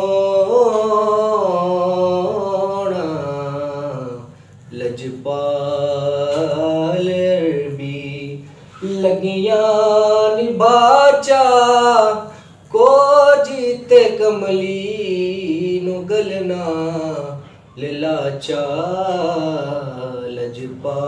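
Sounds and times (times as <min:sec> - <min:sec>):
man singing unaccompanied: 0:00.0 - 0:21.0
singer breathing: 0:04.3 - 0:04.7, 0:12.3 - 0:12.6.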